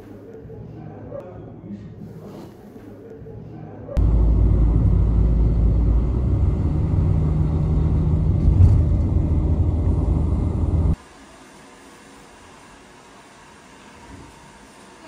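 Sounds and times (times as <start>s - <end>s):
vehicle rumble inside cabin: 4.0s - 11.0s.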